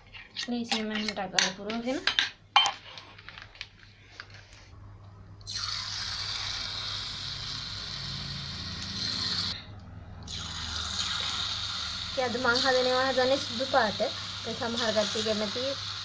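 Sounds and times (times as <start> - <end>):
dough sizzling in hot oil: 5.5 - 9.6, 10.3 - 16.0.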